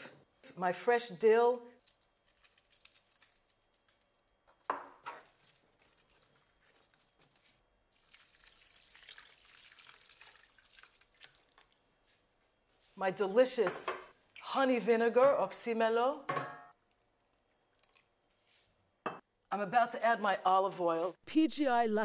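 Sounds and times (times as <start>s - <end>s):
water trickling into a pan: 7.9s - 12.0s.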